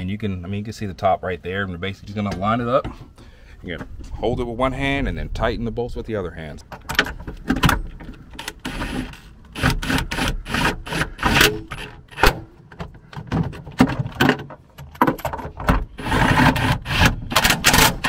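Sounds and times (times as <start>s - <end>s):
socket clattering and scraping: 6.6s - 18.0s
impact wrench bursts: 8.5s - 12.4s.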